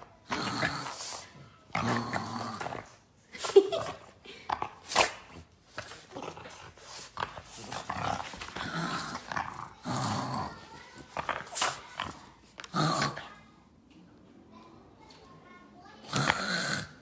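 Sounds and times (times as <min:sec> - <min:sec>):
dog growling in play: 0:00.2 - 0:03.0, 0:03.7 - 0:13.4, 0:16.0 - 0:17.0.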